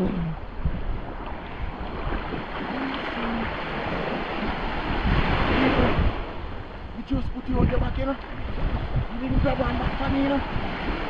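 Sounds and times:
sea waves washing: 0.0s - 11.0s
wind buffeting microphone: 0.0s - 11.0s.

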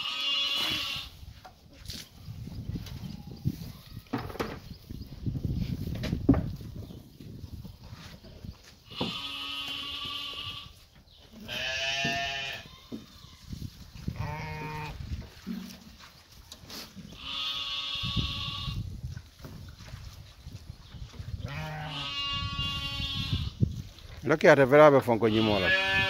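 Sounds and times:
sheep bleating: 0.0s - 1.1s, 8.9s - 10.7s, 11.4s - 12.6s, 14.2s - 15.0s, 17.2s - 18.7s, 21.5s - 23.5s, 25.2s - 26.0s.

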